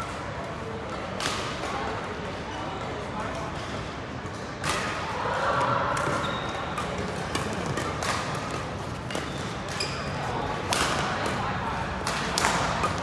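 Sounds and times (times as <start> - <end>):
rackets striking shuttlecock: 5.9 - 11.4, 12.0 - 13.0.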